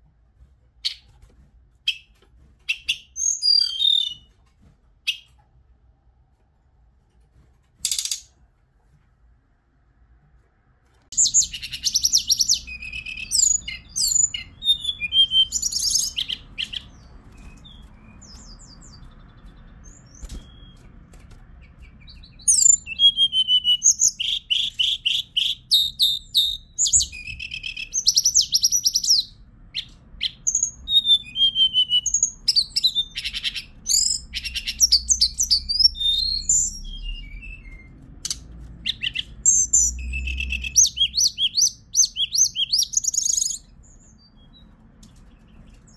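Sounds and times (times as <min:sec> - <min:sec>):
bird singing high trills: 0:02.7 - 0:04.3, 0:11.2 - 0:20.8, 0:21.8 - 0:29.3, 0:30.2 - 0:37.9, 0:38.9 - 0:44.6.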